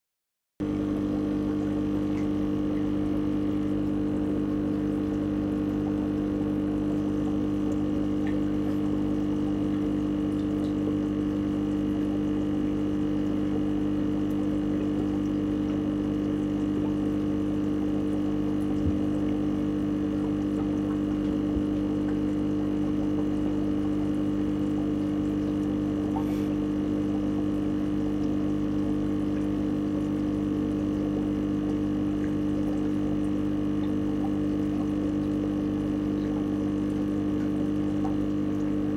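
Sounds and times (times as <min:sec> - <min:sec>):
aquarium pump humming: 0:00.6 - 0:38.9
moving water: 0:00.6 - 0:38.9.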